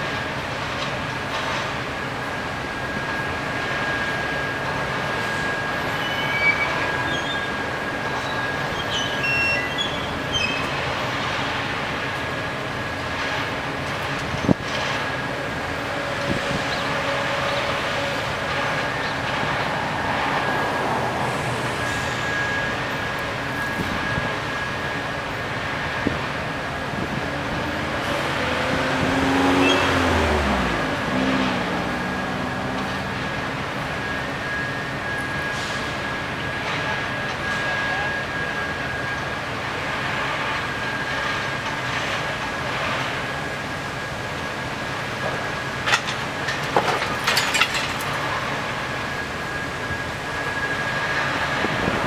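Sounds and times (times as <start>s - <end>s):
crane engine running: 0.0s - 52.0s
machinery hum: 0.0s - 52.0s
faint high whine: 15.3s - 28.8s.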